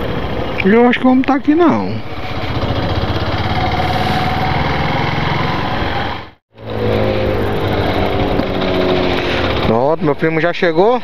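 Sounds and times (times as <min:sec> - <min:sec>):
motorcycle engine running: 0:02.0 - 0:09.8.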